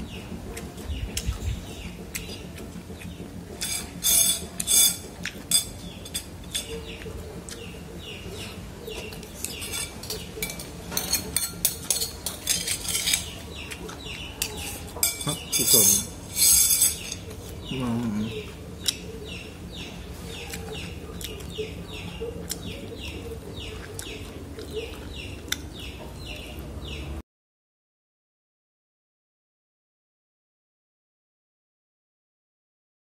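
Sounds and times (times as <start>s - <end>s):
small birds chirping: 0.0s - 27.2s
chopsticks scraping ceramic bowl: 3.6s - 7.0s, 9.0s - 17.7s.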